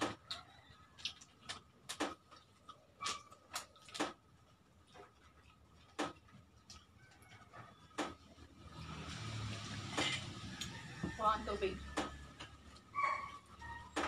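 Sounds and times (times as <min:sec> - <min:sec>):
chewing and lip-smacking: 0:00.0 - 0:08.6.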